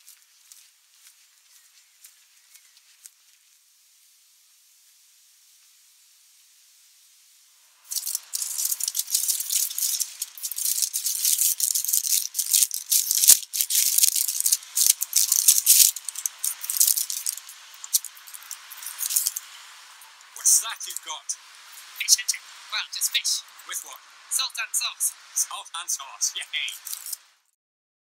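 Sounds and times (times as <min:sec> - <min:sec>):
paper crinkling and rustling: 0:07.9 - 0:19.5, 0:26.5 - 0:27.2.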